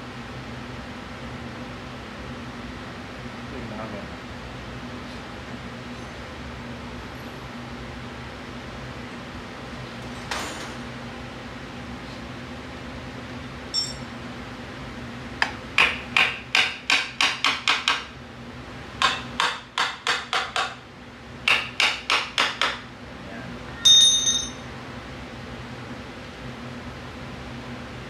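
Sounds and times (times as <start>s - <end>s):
loud metallic clink: 13.7s - 14.1s, 23.9s - 24.6s
hammer tapping on metal: 15.4s - 18.1s, 19.0s - 20.8s, 21.5s - 22.8s.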